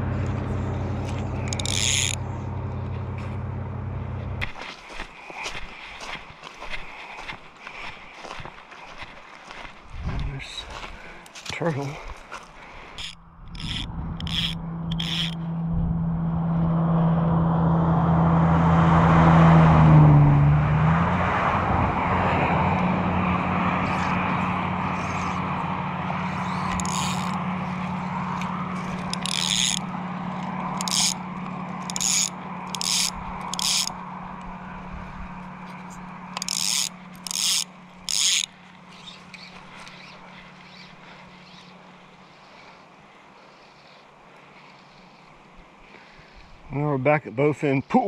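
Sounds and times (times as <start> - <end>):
motor droning: 0.0 - 4.6, 12.0 - 46.6
fly reel click drag rasping: 1.0 - 2.4, 12.9 - 15.4, 26.2 - 34.0, 35.9 - 41.6.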